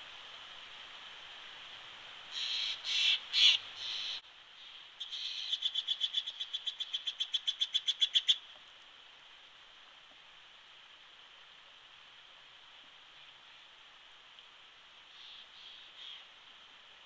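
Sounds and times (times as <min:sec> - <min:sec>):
jay harsh scratchy calls: 0:02.4 - 0:04.2.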